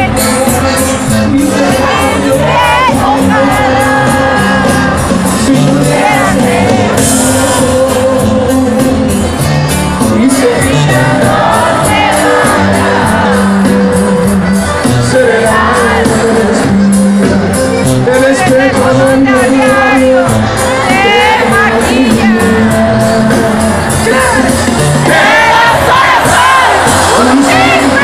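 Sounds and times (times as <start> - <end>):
live band playing: 0.0 - 28.0
person singing: 0.0 - 28.0
audience shouting: 1.6 - 7.8, 23.8 - 28.0.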